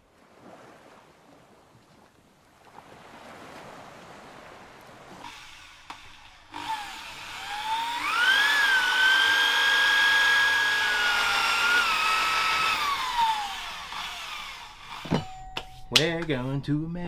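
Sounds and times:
electric drill boring metal: 5.3 - 15.8.

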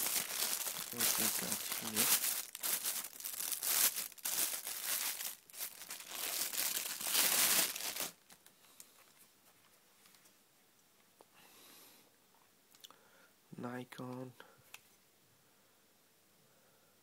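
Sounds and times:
plastic bag crinkling: 0.0 - 8.5.

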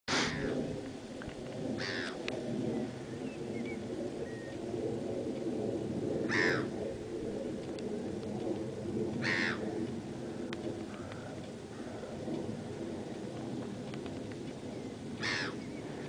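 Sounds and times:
low background rumble: 0.1 - 16.0
loud bird call: 15.2 - 15.8.

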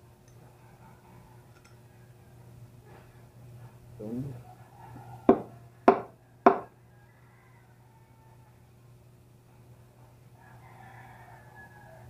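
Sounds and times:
small metal parts clicking: 1.5 - 1.8.

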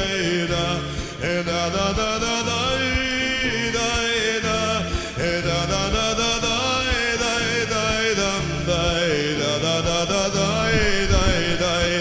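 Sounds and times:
background song: 0.0 - 12.0
repeating bass notes: 0.0 - 12.0.

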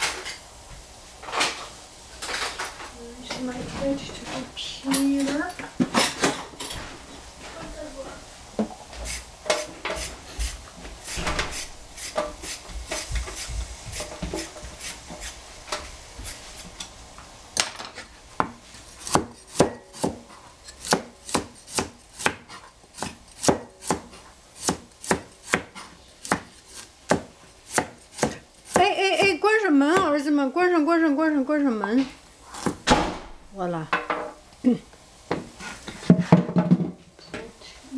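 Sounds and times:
knife chopping on cutting board: 18.4 - 30.2, 32.6 - 32.9.

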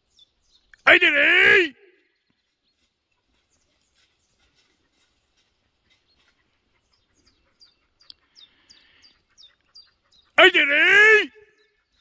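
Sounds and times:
faint bird chirps: 1.9 - 10.4.

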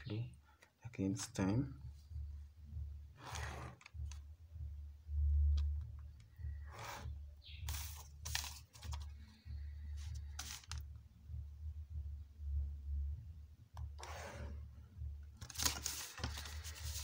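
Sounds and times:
paper rustling: 7.7 - 9.2, 10.0 - 10.8, 15.4 - 17.0.

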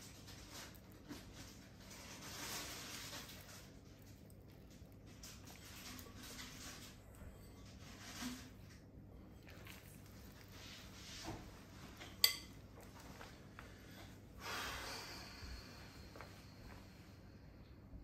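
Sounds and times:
hands working dough in bowl: 0.0 - 14.2
soft rustle: 0.0 - 14.7.

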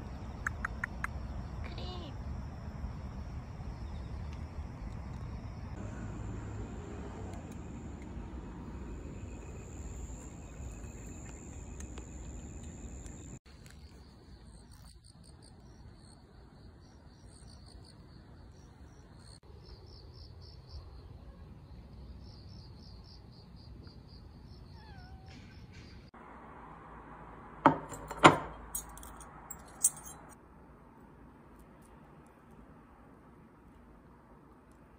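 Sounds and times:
night insects trilling: 0.0 - 25.9.

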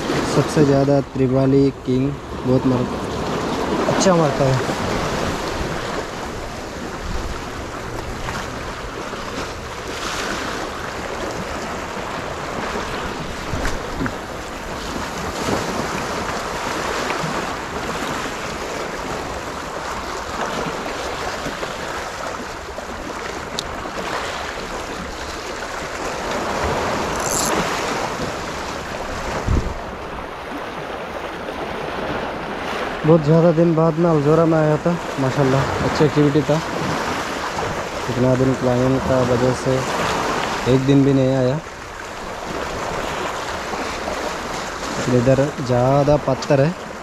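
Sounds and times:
wind buffeting microphone: 0.0 - 33.1
waves washing over rocks: 0.0 - 47.0.

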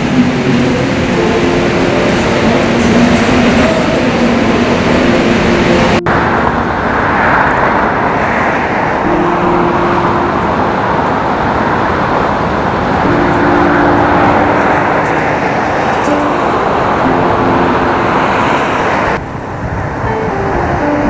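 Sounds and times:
urban traffic noise: 0.0 - 21.0.

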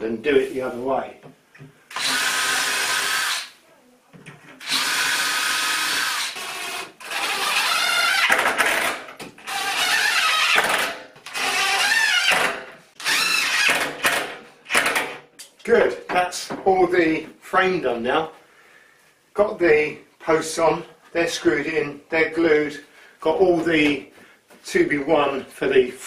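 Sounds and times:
cordless drill driving screws: 1.9 - 3.5, 4.6 - 15.0.

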